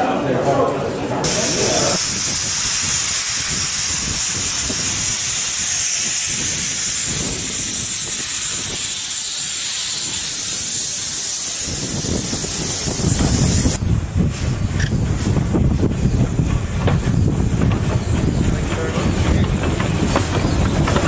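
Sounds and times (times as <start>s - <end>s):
steam locomotive hissing: 1.2s - 21.0s
low rumble of wagons: 11.8s - 21.0s.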